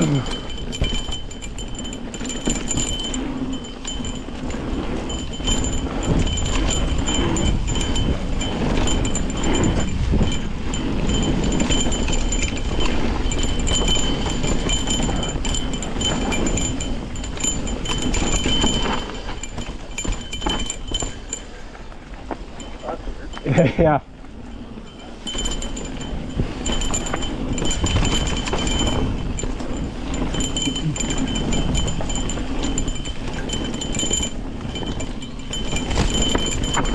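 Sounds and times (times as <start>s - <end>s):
bike rattling over bumps: 0.0s - 36.9s
bike tyres rumbling on dirt: 0.0s - 36.9s
small bell jingling: 0.0s - 36.9s.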